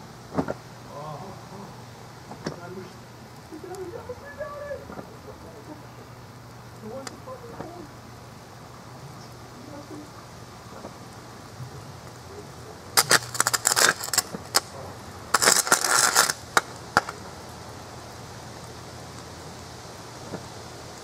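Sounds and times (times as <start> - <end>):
flame jetting: 0.0 - 21.0
rapid sharp crackling pops: 6.2 - 7.9, 10.1 - 21.0.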